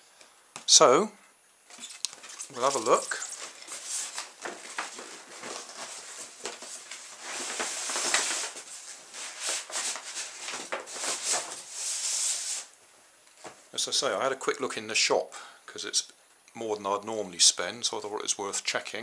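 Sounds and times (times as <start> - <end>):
cardboard scraping and rustling: 1.7 - 12.7.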